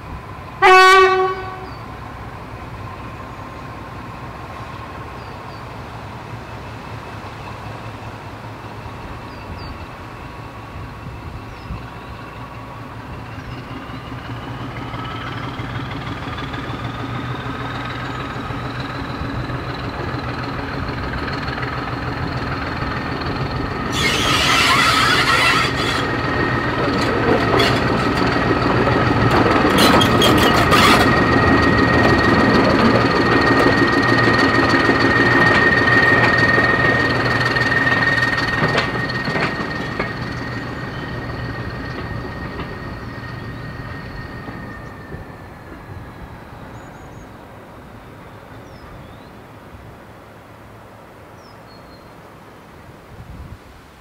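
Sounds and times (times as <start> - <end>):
diesel locomotive engine running: 0.0 - 51.6
high wheel squeal: 11.1 - 47.2
wheels clicking over rail joints: 13.1 - 46.6.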